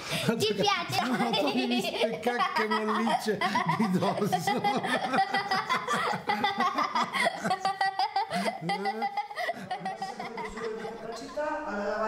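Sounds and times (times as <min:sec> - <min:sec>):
girl giggling: 0:00.2 - 0:11.6
man laughing: 0:00.3 - 0:11.2.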